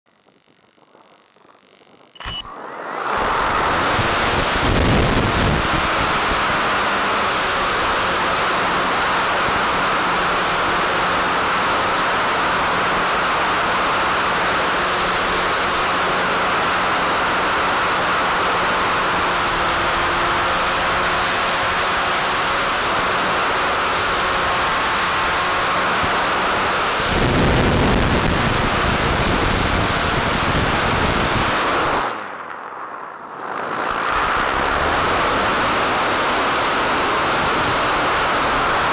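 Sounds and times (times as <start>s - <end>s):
faint steady hum: 0.1s - 6.9s, 27.2s - 38.9s
model plane propeller and motor rushing: 0.3s - 38.9s.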